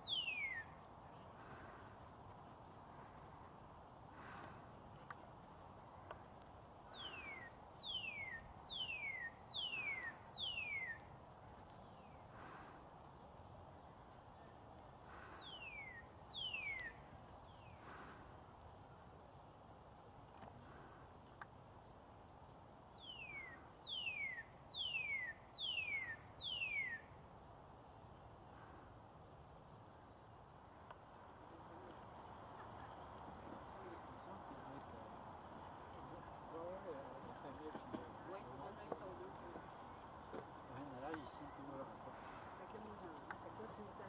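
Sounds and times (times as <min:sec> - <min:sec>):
cardinal singing downslurred whistles: 0:00.0 - 0:00.8, 0:07.0 - 0:11.1, 0:15.4 - 0:17.7, 0:23.0 - 0:27.1.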